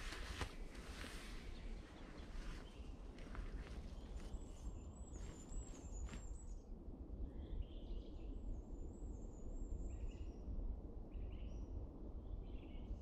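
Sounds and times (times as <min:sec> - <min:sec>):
songbirds chirping: 0:00.0 - 0:06.6.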